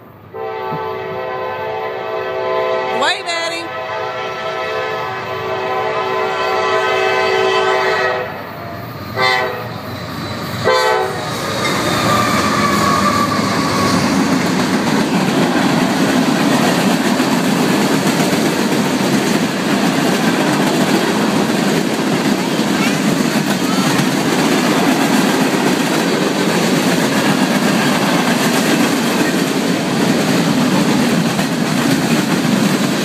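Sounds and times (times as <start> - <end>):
freight train rumbling past: 0.0 - 33.0
locomotive air horn blasts: 0.3 - 3.0, 3.6 - 8.4, 9.2 - 9.7, 10.6 - 11.2
rail clatter: 11.2 - 33.0.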